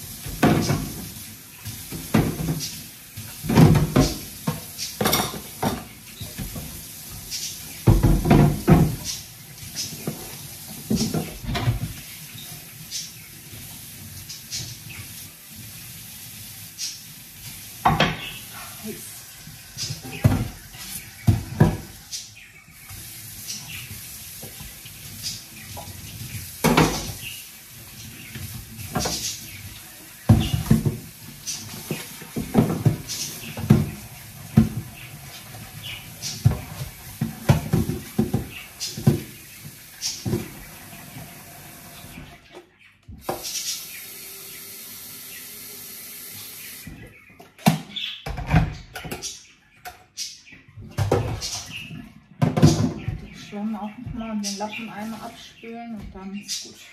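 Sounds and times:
tap water running: 0:00.0 - 0:56.9
crockery clinking in sink: 0:05.0 - 0:05.9.

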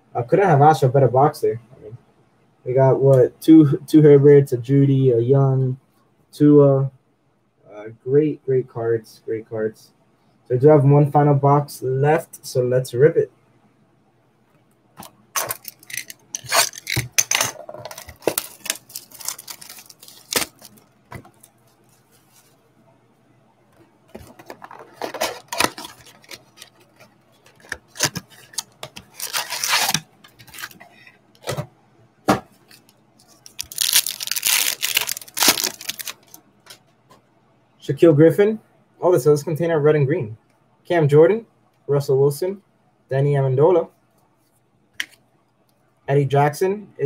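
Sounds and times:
cardboard and wrapper tearing: 0:15.4 - 0:17.2, 0:17.8 - 0:20.8, 0:24.4 - 0:26.9, 0:27.5 - 0:30.8, 0:33.3 - 0:36.4.

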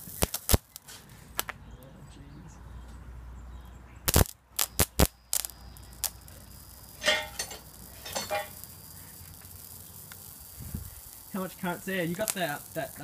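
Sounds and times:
electrical arcing snaps: 0:00.0 - 0:01.6, 0:04.0 - 0:13.0.

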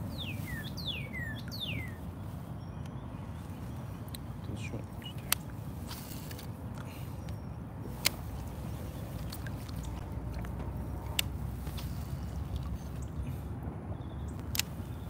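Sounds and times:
low boat rumble: 0:00.0 - 0:15.0
sharp clicks: 0:14.3 - 0:14.9.

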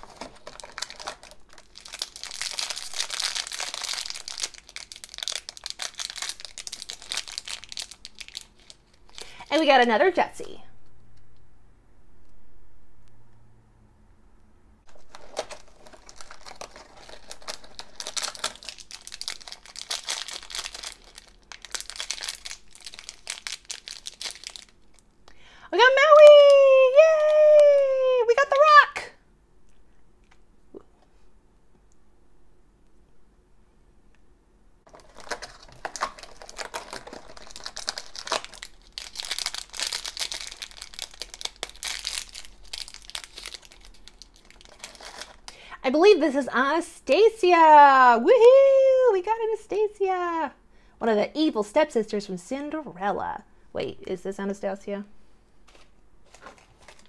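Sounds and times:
plastic bag crackling: 0:00.0 - 0:09.8, 0:14.9 - 0:25.0, 0:34.9 - 0:45.6, 0:55.6 - 0:57.0
plastic wrapper crinkling and tearing: 0:00.0 - 0:09.8, 0:14.9 - 0:25.2, 0:34.9 - 0:45.7, 0:55.6 - 0:57.0.

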